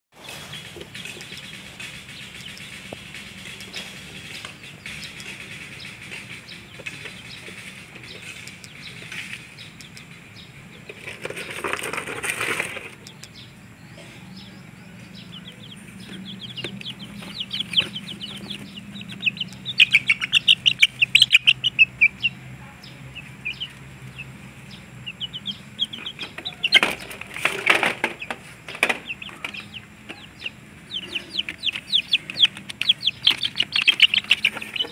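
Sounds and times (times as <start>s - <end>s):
chicks peeping: 0.2s - 34.9s
wings flapping and scuffling: 10.8s - 13.4s, 15.3s - 34.9s.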